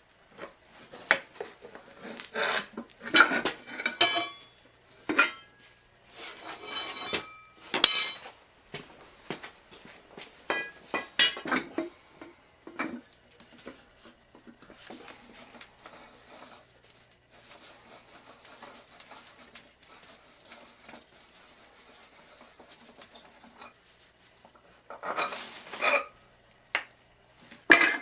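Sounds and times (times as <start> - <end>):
rustling handling noise: 0.2 - 25.8
metal clanks and clinks: 3.2 - 4.5, 5.1 - 5.5, 6.6 - 8.4, 10.5 - 11.7.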